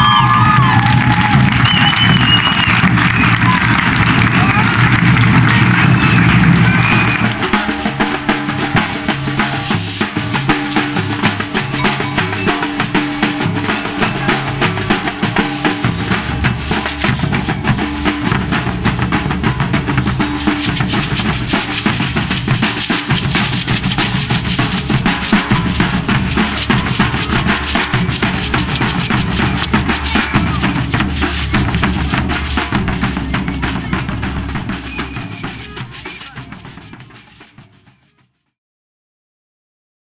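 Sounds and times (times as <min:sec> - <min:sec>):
bass and snare drums playing: 0:00.0 - 0:38.2
low melody: 0:10.5 - 0:37.1.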